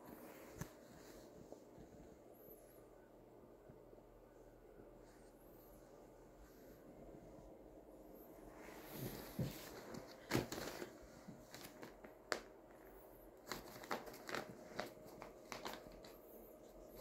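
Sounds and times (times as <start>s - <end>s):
newspaper crinkling and rustling: 9.4s - 12.4s, 13.4s - 16.2s.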